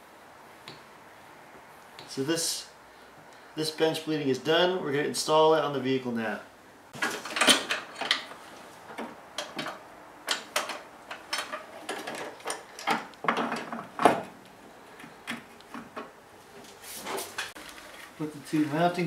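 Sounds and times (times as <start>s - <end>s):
metal and plastic parts bumping: 7.0s - 14.4s
clicks and knocks of parts: 7.0s - 16.2s.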